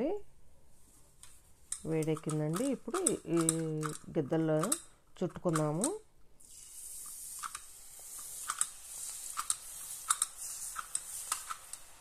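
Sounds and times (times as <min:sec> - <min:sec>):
dough frying in hot oil: 0:06.4 - 0:12.0
oil crackles and pops: 0:06.4 - 0:12.0.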